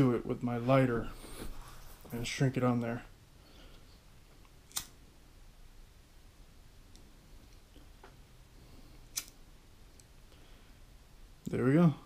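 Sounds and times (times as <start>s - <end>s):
lighter clicking: 4.7s - 5.0s, 9.1s - 9.4s
faint lighter ticks: 9.1s - 9.4s.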